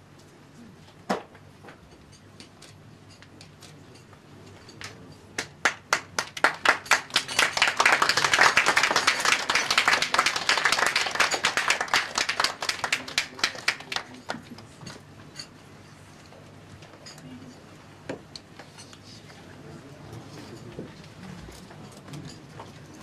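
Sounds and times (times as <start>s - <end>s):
audience clapping: 4.8s - 14.7s.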